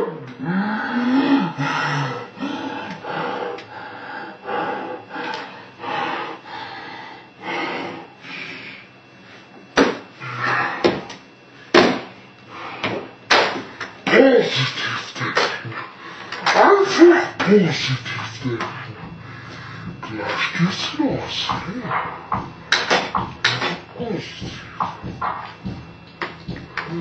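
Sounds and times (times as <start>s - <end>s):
slowed deep noisy bursts: 17.3s - 27.0s.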